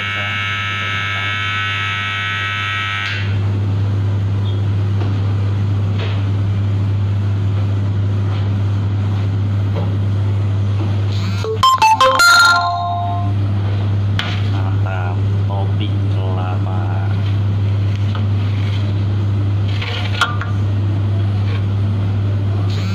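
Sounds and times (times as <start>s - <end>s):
electronic timer buzzer: 0.0s - 3.4s, 11.2s - 13.4s.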